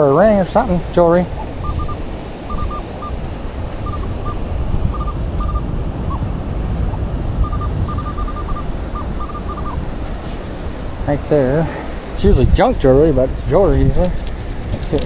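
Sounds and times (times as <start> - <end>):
wind on microphone: 0.0 - 15.0
metal detector beeps: 1.4 - 3.2, 3.8 - 6.3, 7.4 - 9.8.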